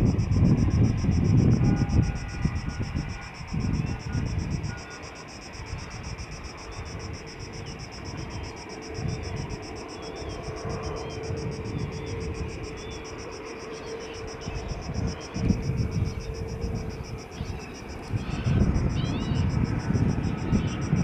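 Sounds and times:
distant jet engines rumbling: 0:00.0 - 0:21.0
pulsing insect chorus: 0:00.0 - 0:21.0
faint bird chirps: 0:13.6 - 0:19.5.

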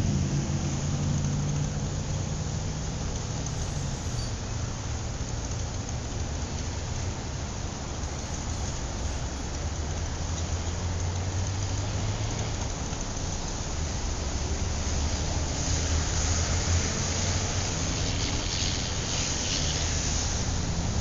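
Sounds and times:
even hiss: 0:00.0 - 0:10.3
low mechanical hum: 0:00.0 - 0:21.0.

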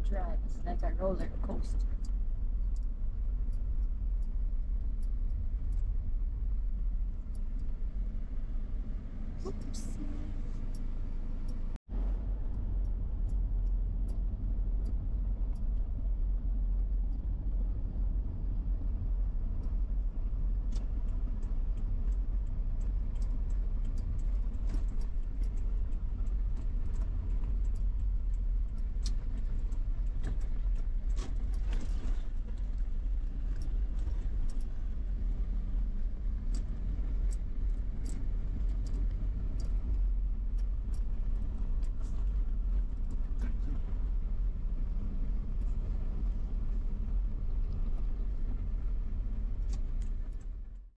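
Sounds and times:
car road and engine rumble: 0:00.0 - 0:50.9
light clicks and rattles: 0:12.5 - 0:50.9.

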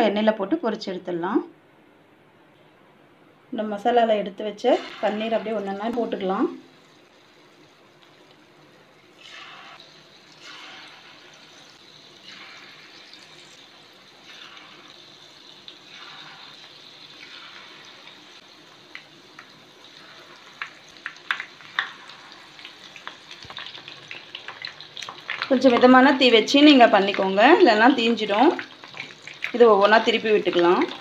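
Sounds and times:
food sizzling in hot oil: 0:04.6 - 0:31.0
oil crackling and popping: 0:09.1 - 0:31.0.

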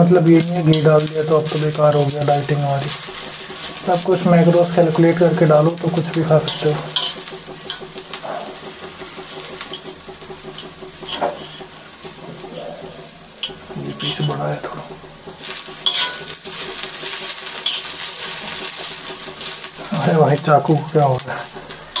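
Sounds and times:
onions sizzling in oil: 0:00.0 - 0:22.0
knife scraping pan: 0:11.0 - 0:14.1, 0:15.5 - 0:19.0.

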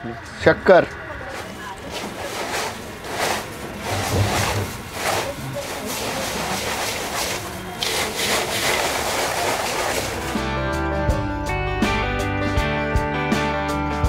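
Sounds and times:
dry snack mix rustling in bowl: 0:01.3 - 0:10.5.

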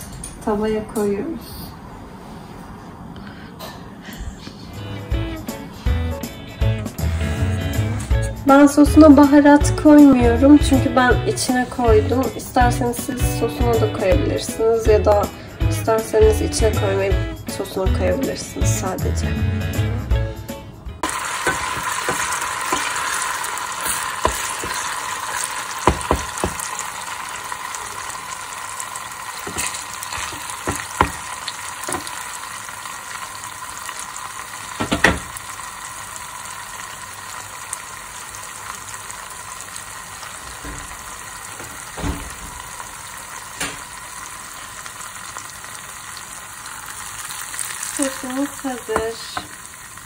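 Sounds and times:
tomato paste sizzling in a pan: 0:21.0 - 0:50.0
wooden spoon knocking a pan: 0:21.4 - 0:23.1, 0:23.8 - 0:24.9, 0:25.8 - 0:26.7, 0:29.4 - 0:31.3, 0:31.9 - 0:32.1, 0:34.8 - 0:35.4.

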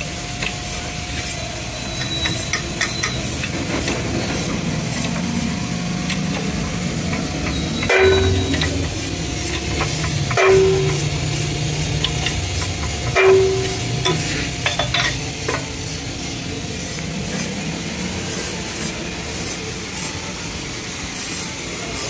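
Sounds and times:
low workshop hum: 0:00.0 - 0:22.0
sharp metal clanks with ring: 0:07.8 - 0:09.0, 0:09.7 - 0:15.6.

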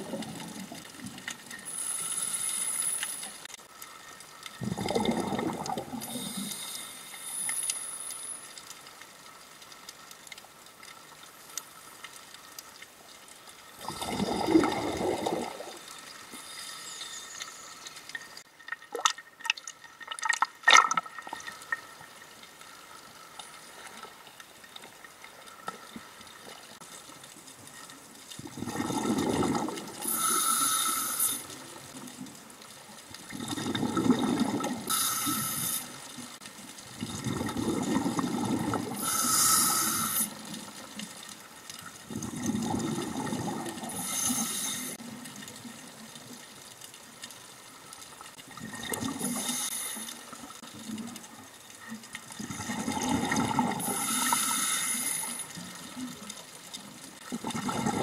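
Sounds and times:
water splashing against camera: 0:00.0 - 0:22.6
underwater exhaled bubbles rushing: 0:04.6 - 0:06.6, 0:13.8 - 0:16.0, 0:28.4 - 0:31.0, 0:33.2 - 0:40.6, 0:42.0 - 0:45.1, 0:48.4 - 0:51.3, 0:52.3 - 0:55.0, 0:57.2 - 0:58.0.

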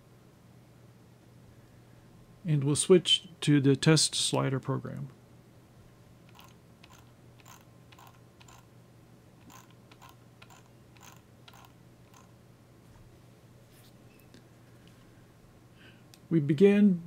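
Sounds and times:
low steady hum: 0:00.0 - 0:17.0
computer mouse clicking: 0:06.3 - 0:08.6, 0:09.4 - 0:12.3.

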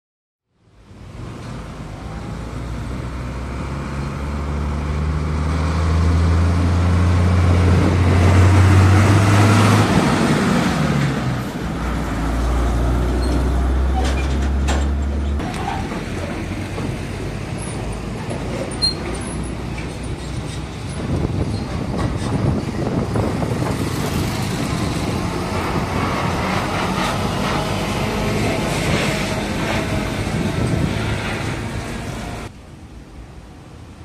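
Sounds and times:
diesel trucks passing: 0:00.6 - 0:32.6.

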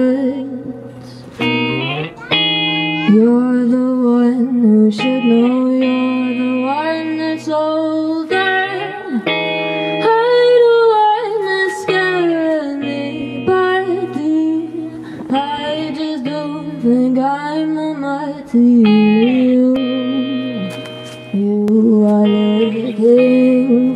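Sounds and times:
acoustic guitar: 0:00.0 - 0:23.9
person singing: 0:00.0 - 0:23.9.

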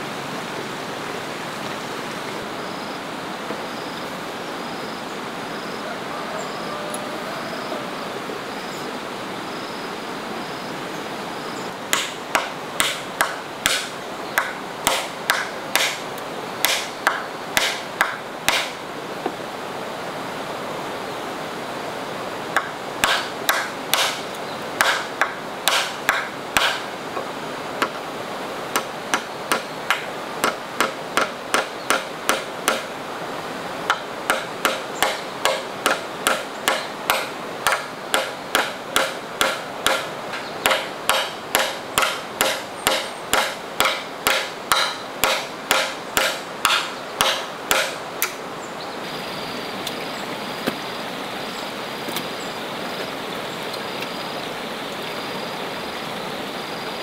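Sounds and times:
steady background hiss: 0:00.0 - 0:57.0
hammer striking wooden log: 0:11.9 - 0:16.0, 0:16.6 - 0:18.8, 0:22.6 - 0:28.0, 0:28.7 - 0:32.9, 0:33.9 - 0:48.4.

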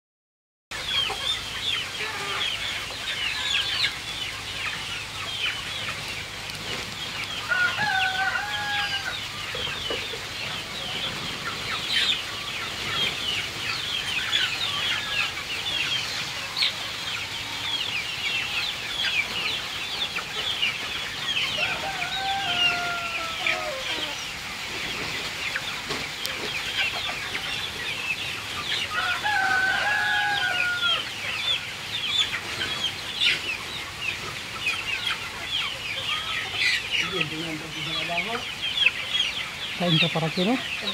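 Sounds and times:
chickens clucking and chirping: 0:00.7 - 0:40.9
chicken long held call: 0:07.5 - 0:09.3, 0:21.6 - 0:24.3, 0:28.9 - 0:31.1.

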